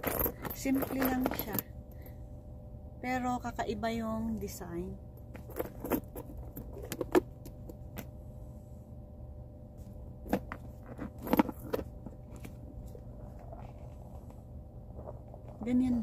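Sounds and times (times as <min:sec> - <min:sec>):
metal chain clinking: 0:00.0 - 0:01.7, 0:05.4 - 0:07.1
faint car cabin hum: 0:00.0 - 0:16.0.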